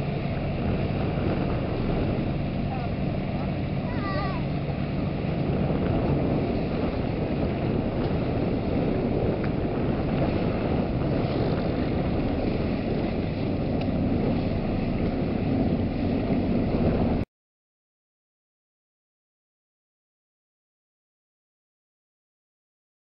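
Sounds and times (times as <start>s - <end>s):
motorboat engine hum: 0.0s - 17.2s
wind rumbling on microphone: 0.0s - 17.3s.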